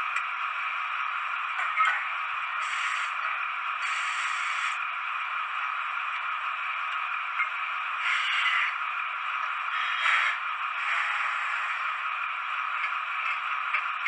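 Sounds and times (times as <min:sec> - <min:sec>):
model train rattling on track: 0:07.9 - 0:14.0
model train scraping: 0:08.0 - 0:08.8, 0:09.7 - 0:12.0.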